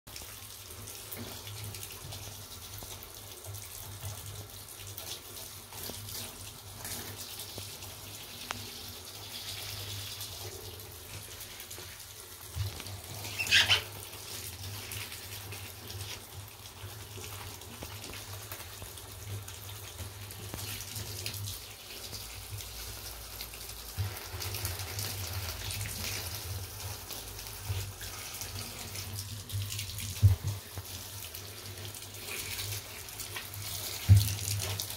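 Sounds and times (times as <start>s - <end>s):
shower spray splashing on sneakers: 5.0s - 34.9s
short high-pitched squeak: 13.3s - 13.9s.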